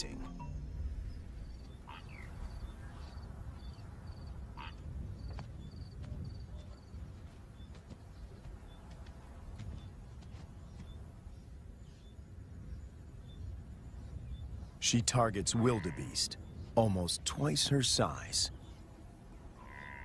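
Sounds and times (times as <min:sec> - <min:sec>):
sweeping animal calls: 0:00.0 - 0:04.9, 0:14.8 - 0:16.7, 0:17.4 - 0:20.0.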